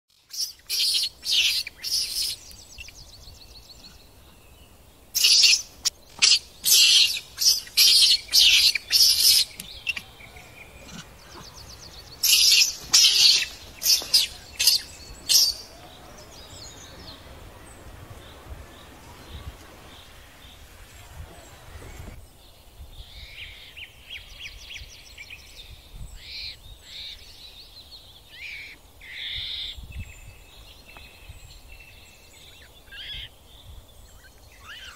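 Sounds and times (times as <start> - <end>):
faint high chirping: 5.1 - 22.2.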